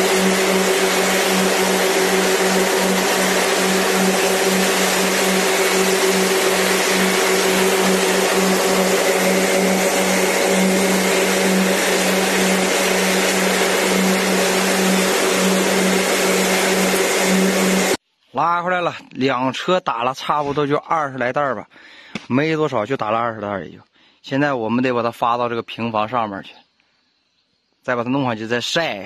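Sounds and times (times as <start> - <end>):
farm machine running: 0.0 - 18.0.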